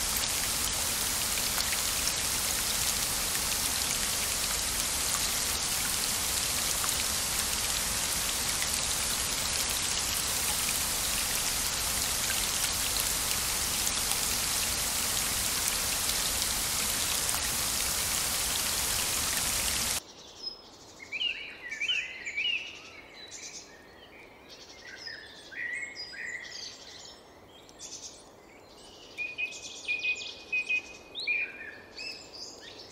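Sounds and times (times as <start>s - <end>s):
rain hiss: 0.0s - 20.0s.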